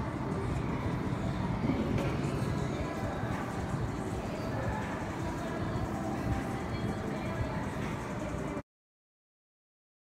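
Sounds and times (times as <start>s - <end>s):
background music: 0.0s - 8.6s
shopping mall hum: 0.0s - 8.6s.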